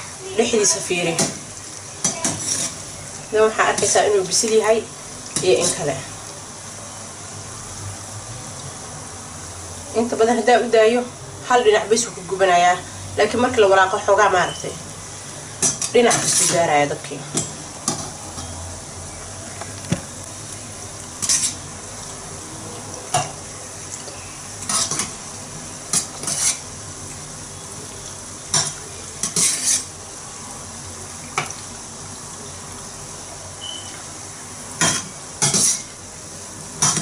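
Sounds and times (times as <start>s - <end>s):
dough frying in oil: 0.0s - 37.0s
metal skimmer scraping pan: 2.1s - 2.9s, 21.2s - 21.7s, 25.9s - 26.7s, 29.2s - 29.9s, 34.8s - 35.9s.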